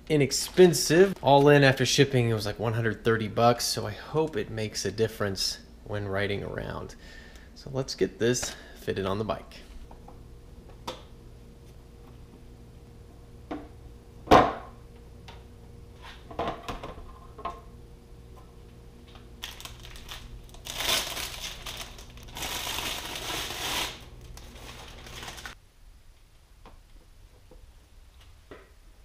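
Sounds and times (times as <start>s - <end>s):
plastic bag crinkling: 19.4s - 25.6s.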